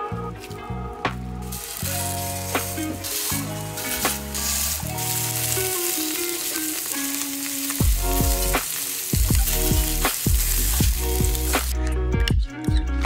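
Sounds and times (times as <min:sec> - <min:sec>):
background music with beat: 0:00.0 - 0:13.0
patties sizzling in hot oil: 0:01.4 - 0:11.8.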